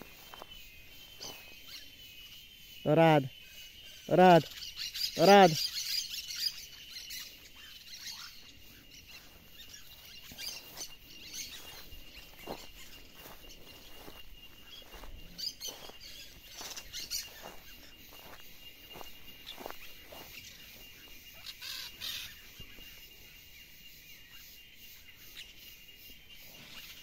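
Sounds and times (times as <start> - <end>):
footsteps through dry grass: 0.0 - 2.1, 6.4 - 22.9
birds chirping: 0.0 - 27.0.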